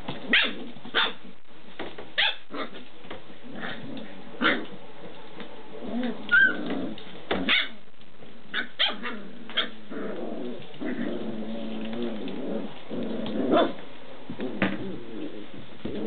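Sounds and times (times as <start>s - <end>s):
puppies growling: 3.4s - 4.9s, 5.7s - 7.6s, 8.6s - 16.0s
puppies yipping and barking: 6.2s - 6.7s.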